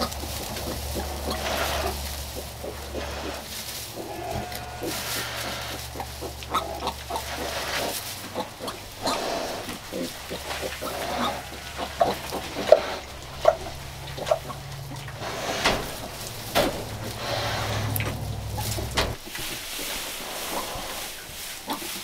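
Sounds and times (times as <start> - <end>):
pig grunting: 0.0 - 19.2
straw rustling: 0.0 - 22.0.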